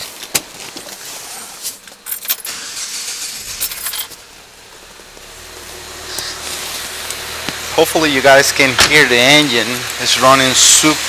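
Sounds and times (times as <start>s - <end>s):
car engine starting and idling: 0.0s - 11.0s
keys jingling: 1.8s - 2.6s, 3.4s - 4.2s.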